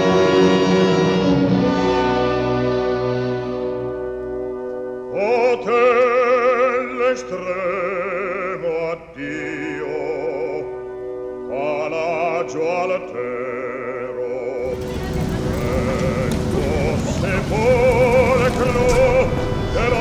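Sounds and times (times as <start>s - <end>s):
operatic singing with vibrato: 0.0s - 2.5s, 5.1s - 20.0s
instrumental accompaniment: 0.0s - 5.9s, 14.6s - 20.0s.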